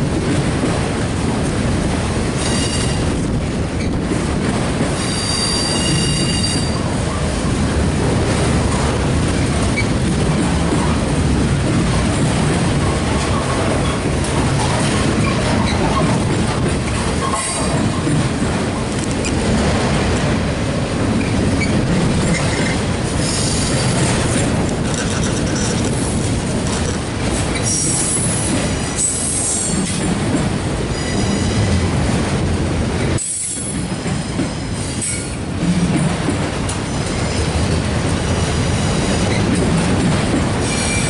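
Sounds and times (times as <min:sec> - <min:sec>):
steel wheels rumbling on rail: 0:00.0 - 0:41.0.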